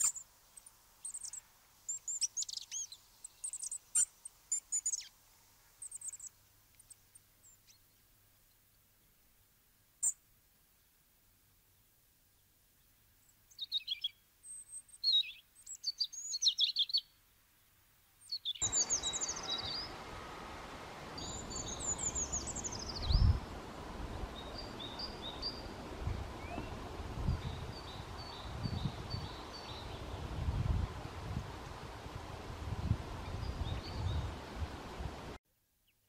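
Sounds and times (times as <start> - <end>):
bird song trills: 0.0 - 5.1, 5.8 - 8.1, 13.2 - 17.2, 18.2 - 20.0, 21.2 - 23.5, 24.3 - 30.4.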